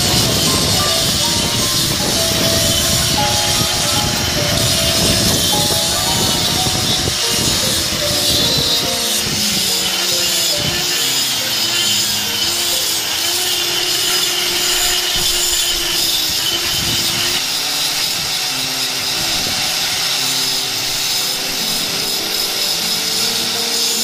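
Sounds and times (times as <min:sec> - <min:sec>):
power tool grinding marble: 0:00.0 - 0:24.0.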